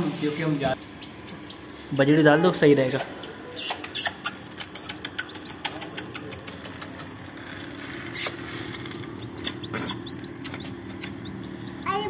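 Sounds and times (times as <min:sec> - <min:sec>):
steady motor hum: 0:00.0 - 0:12.0
sharp clicks and taps: 0:03.9 - 0:07.2.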